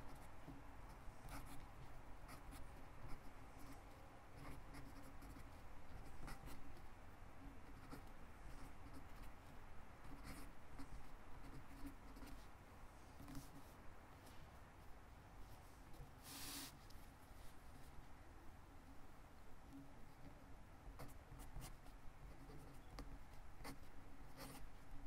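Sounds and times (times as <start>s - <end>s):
pen scratching on paper: 0.9s - 3.8s, 4.4s - 6.6s, 7.6s - 9.3s, 10.0s - 12.5s, 21.0s - 24.7s.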